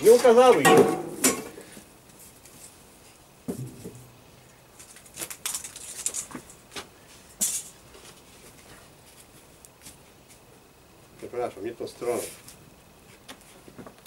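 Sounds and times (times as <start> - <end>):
paper rustling and crinkling: 4.7 - 6.8.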